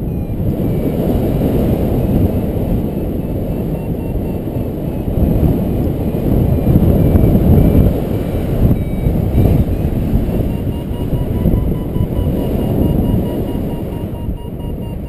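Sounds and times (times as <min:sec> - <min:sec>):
wind buffeting microphone: 0:00.0 - 0:15.0
faint short beeps: 0:03.2 - 0:05.4, 0:08.6 - 0:15.0.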